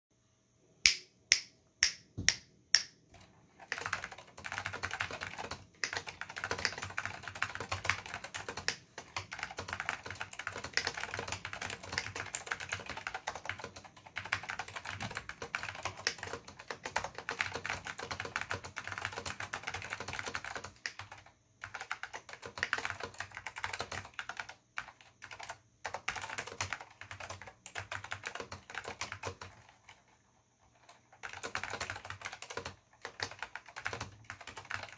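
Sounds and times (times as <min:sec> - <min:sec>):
finger snaps: 0:00.8 - 0:03.0
fast typing on mechanical keyboard: 0:03.1 - 0:34.9.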